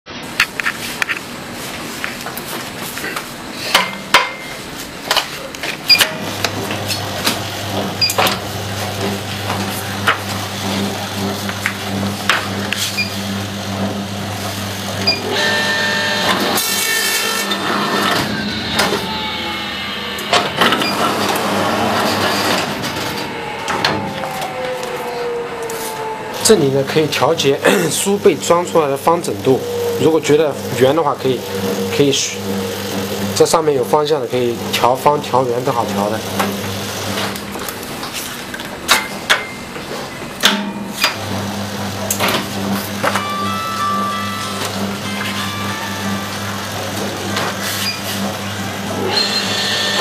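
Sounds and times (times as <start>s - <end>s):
machine motor hum: 5.8s - 38.8s, 40.7s - 50.0s
rushing clattering machine: 5.9s - 50.0s.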